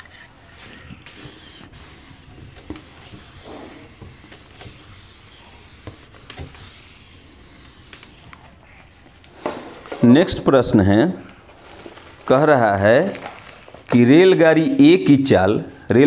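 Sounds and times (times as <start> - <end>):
duster rubbing whiteboard: 0.1 - 9.9.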